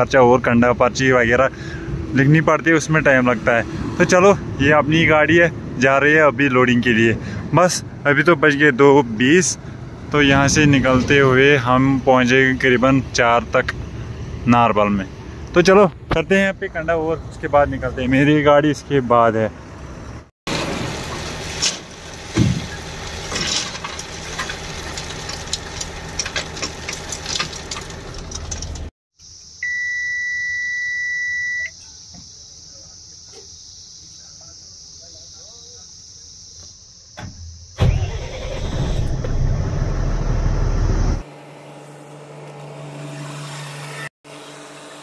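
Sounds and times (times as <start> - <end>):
truck yard noise: 0.0 - 28.9
diesel truck engine starting and idling: 16.4 - 28.9, 37.8 - 41.2
steady electronic beep: 29.6 - 31.7.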